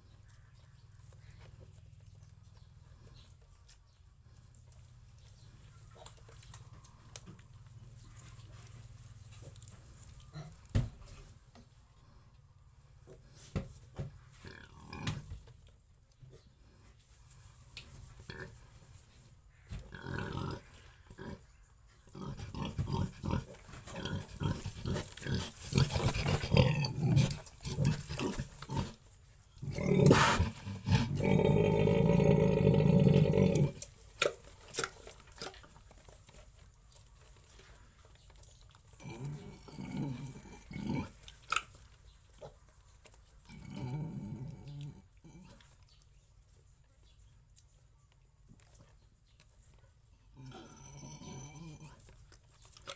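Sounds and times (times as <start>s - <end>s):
pigs grunting: 14.4s - 15.4s, 19.7s - 34.0s, 38.8s - 41.7s, 43.4s - 45.8s, 50.3s - 52.1s
loud pig call: 29.7s - 33.8s.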